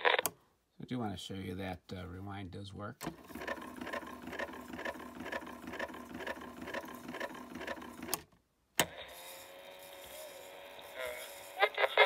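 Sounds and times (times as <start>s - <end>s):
tape recorder rewinding whir: 3.0s - 8.2s, 8.8s - 12.0s.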